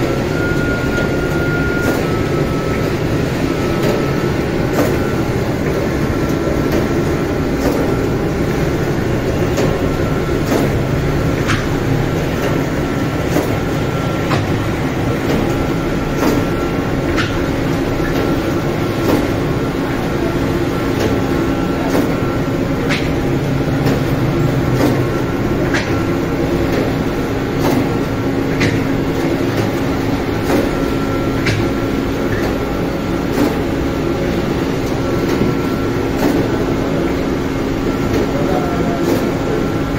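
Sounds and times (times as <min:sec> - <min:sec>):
dough machine humming: 0:00.0 - 0:39.9
machine clicks and rattles: 0:03.7 - 0:20.1, 0:21.9 - 0:37.2.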